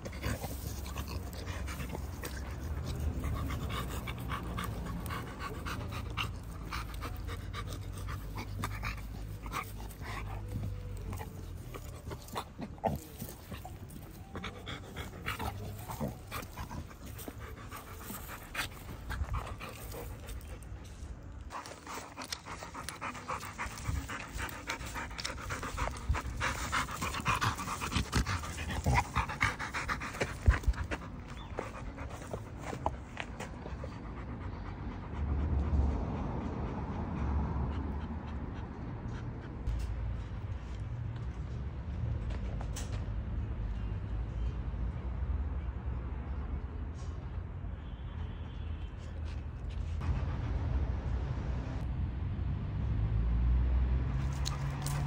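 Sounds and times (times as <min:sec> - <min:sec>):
scraping of dry dirt and leaves: 0:00.0 - 0:33.6
dog panting: 0:00.0 - 0:39.9.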